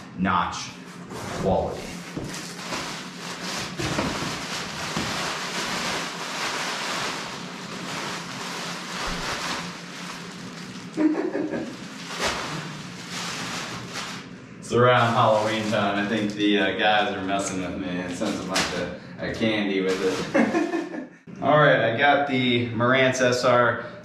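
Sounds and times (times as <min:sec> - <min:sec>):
packing material crinkling: 0:01.9 - 0:14.4, 0:15.0 - 0:16.6.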